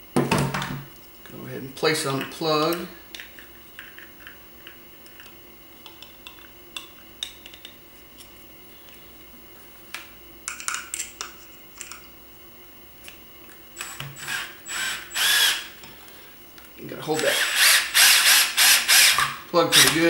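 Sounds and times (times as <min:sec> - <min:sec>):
small parts clicking and tapping: 0:09.9 - 0:12.0
cordless drill driving screw: 0:13.8 - 0:15.7, 0:17.2 - 0:20.0.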